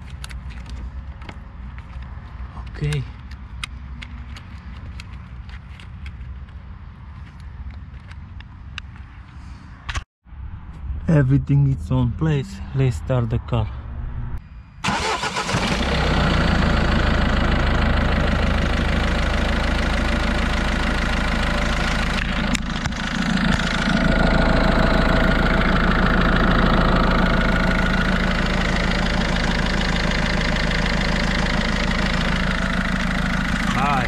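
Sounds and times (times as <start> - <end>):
diesel engine idling: 14.8 - 34.0.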